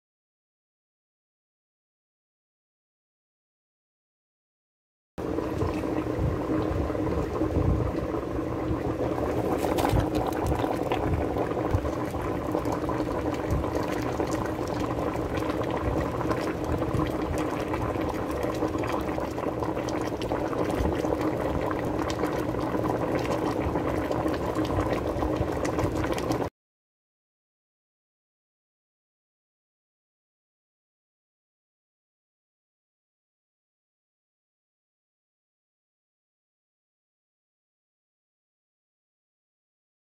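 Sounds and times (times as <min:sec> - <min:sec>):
soup bubbling and popping: 0:05.2 - 0:26.5.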